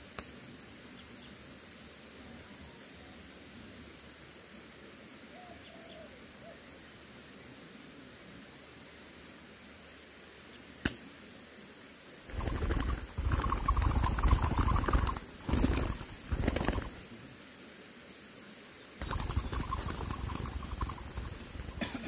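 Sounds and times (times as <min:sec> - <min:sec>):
high insect drone: 0:00.0 - 0:22.0
sharp click: 0:10.8 - 0:11.0
dove cooing: 0:12.3 - 0:17.0, 0:19.0 - 0:22.0.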